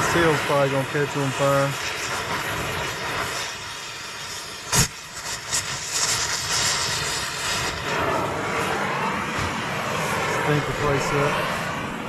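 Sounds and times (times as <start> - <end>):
cutting torch hissing: 0.0 - 12.0
sharp pop: 4.7 - 5.0.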